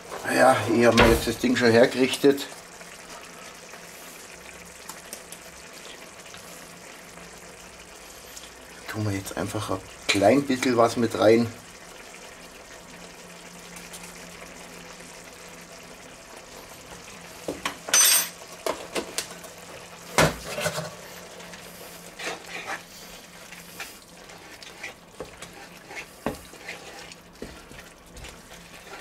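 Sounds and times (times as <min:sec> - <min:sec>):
sauce simmering: 0:00.0 - 0:29.0
wooden spatula stirring in pan: 0:20.4 - 0:29.0.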